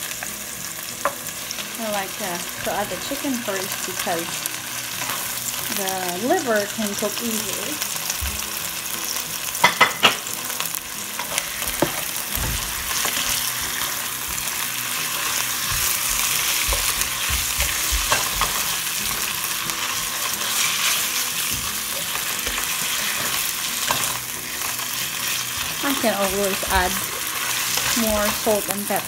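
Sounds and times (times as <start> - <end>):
chicken frying in hot oil: 1.8 - 29.0
spatula stirring food: 2.5 - 5.6, 10.5 - 29.0.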